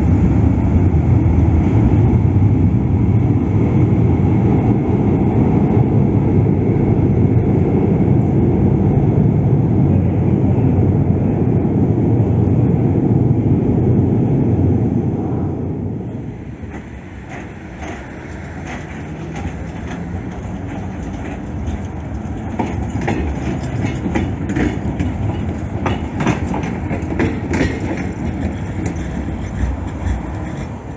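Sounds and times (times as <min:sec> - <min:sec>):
tram running rumble: 0:00.0 - 0:30.9
wheels clicking over rail joints: 0:16.3 - 0:30.9.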